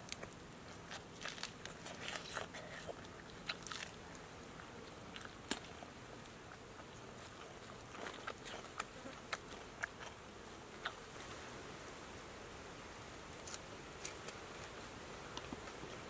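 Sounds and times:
faint hiss: 10.2s - 16.0s.

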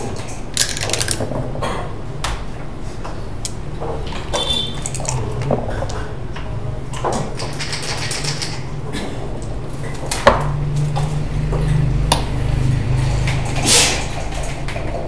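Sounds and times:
game pieces clicking: 0.6s - 1.2s, 4.8s - 5.5s.

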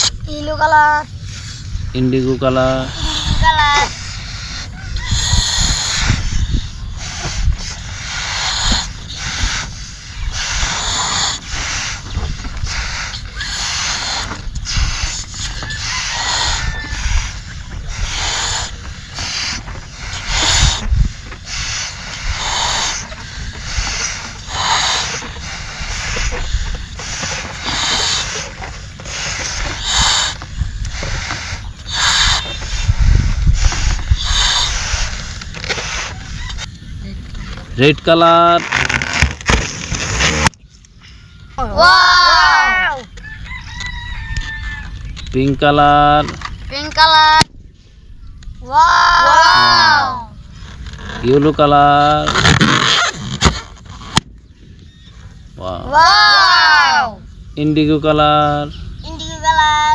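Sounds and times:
steady low rumble: 0.0s - 38.8s
breathy puffs blowing up balloons: 2.7s - 36.6s, 38.6s - 40.5s, 52.0s - 54.2s.

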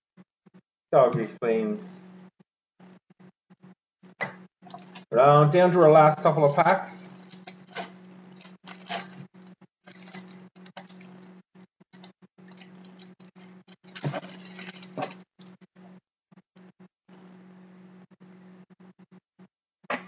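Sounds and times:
foil pack crinkling: 5.9s - 11.3s, 12.5s - 15.5s.

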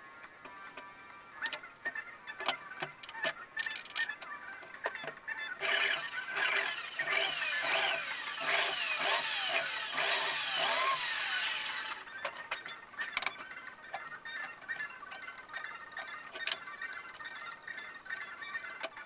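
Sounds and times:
electric drill drilling into wood: 5.6s - 12.1s.

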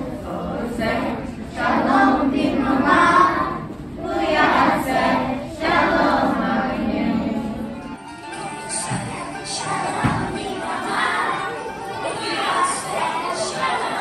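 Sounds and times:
children singing unaccompanied: 0.0s - 14.0s.

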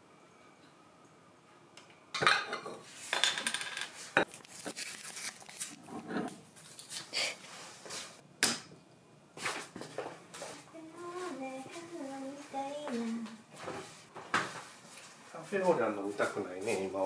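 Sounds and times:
tableware and bottle clinking: 2.2s - 4.3s.

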